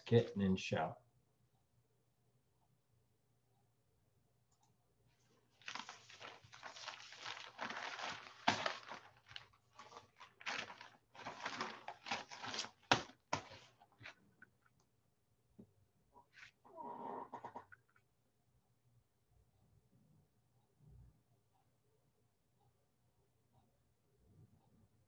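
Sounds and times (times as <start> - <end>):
rustling and crinkling: 5.2 - 14.8.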